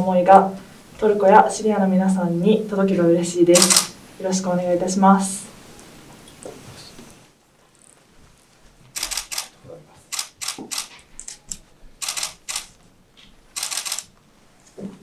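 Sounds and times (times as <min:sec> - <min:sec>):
camera shutter bursts: 0:03.6 - 0:04.0, 0:09.0 - 0:09.5, 0:10.1 - 0:10.9, 0:12.0 - 0:12.8, 0:13.6 - 0:14.1.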